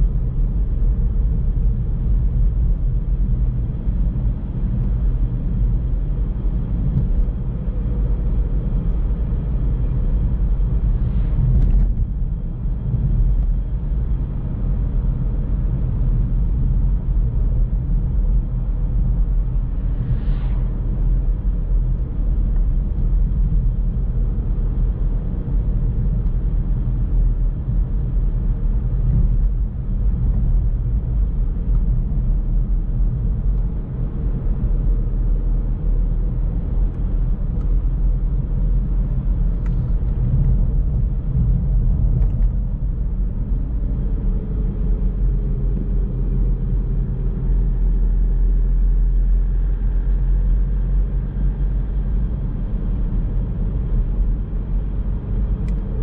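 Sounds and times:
car driving on road: 0.0 - 56.0.

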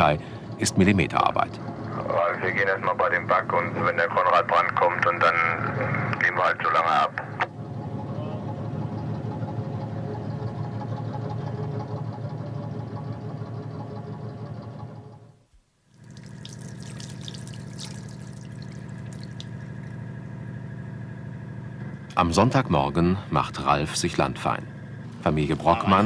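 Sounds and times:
boat diesel engine running: 0.0 - 15.5, 16.1 - 26.0
low hum: 0.0 - 26.0
water splashing in washbasin: 15.9 - 19.9.

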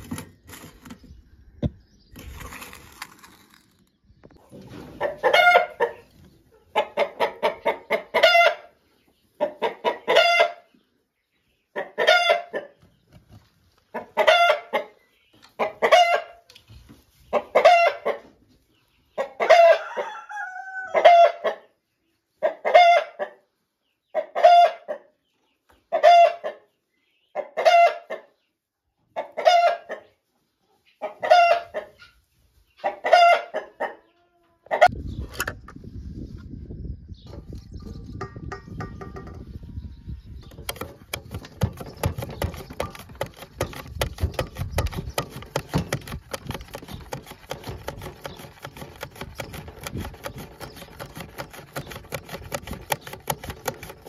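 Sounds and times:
chicken clucking: 4.3 - 35.3
chicken cackling: 4.8 - 10.8, 11.6 - 12.9, 13.8 - 16.6, 17.2 - 25.2, 25.8 - 28.4, 29.0 - 35.2.

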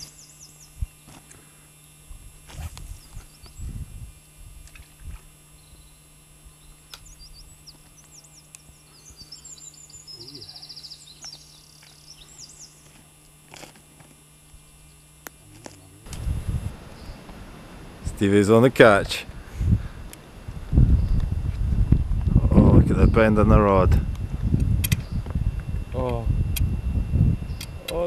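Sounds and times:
bird trill: 0.0 - 0.8, 5.5 - 12.8
small birds chirping: 0.0 - 2.0, 2.8 - 3.8, 5.5 - 13.0, 16.9 - 17.3, 20.8 - 21.4, 22.9 - 23.4, 24.8 - 25.3, 27.4 - 28.0.

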